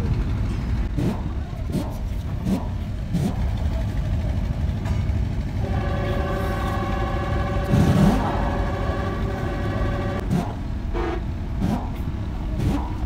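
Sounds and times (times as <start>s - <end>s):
vehicle engine running: 0.0s - 13.0s
steady whine: 5.5s - 11.6s.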